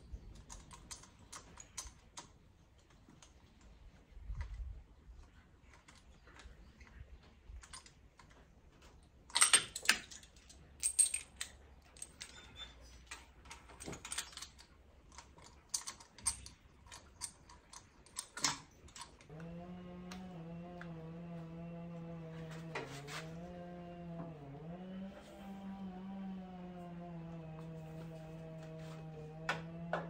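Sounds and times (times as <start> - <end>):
tools clattering: 9.3 - 19.3.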